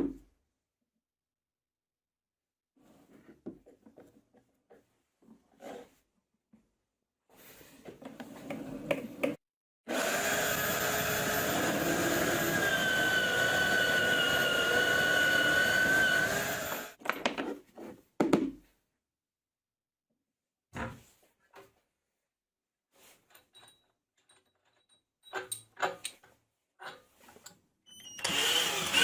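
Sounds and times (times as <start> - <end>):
drill bit cutting wood: 9.9 - 17.0, 28.0 - 29.0
drill press motor whine: 9.9 - 17.0, 28.0 - 29.0.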